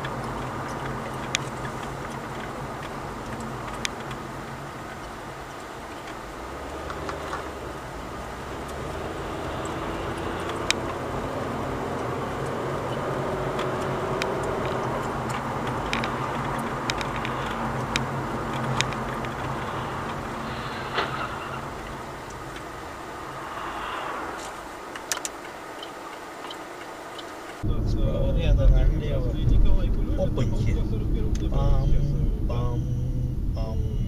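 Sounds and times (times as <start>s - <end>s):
sharp clicks and knocks: 0.0s - 23.0s, 24.4s - 27.6s
car engine and road noise: 0.0s - 34.0s.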